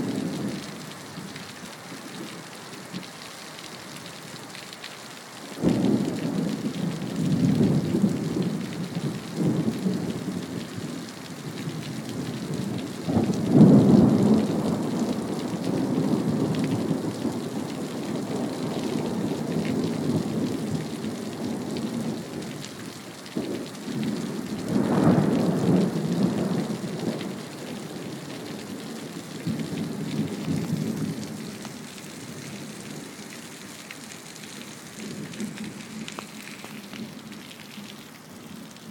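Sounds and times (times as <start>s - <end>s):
steady rain: 0.0s - 38.9s
thunder rumbling: 23.4s - 31.5s.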